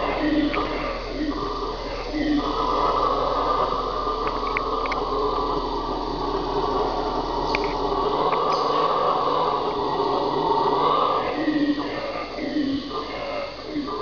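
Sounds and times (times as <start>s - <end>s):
howler monkeys roaring: 0.0s - 14.0s.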